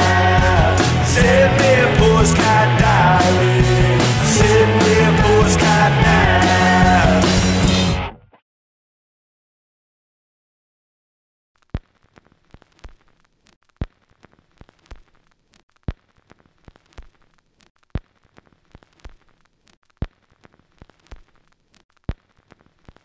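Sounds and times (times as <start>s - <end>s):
vinyl surface crackle and hiss: 11.6s - 23.0s.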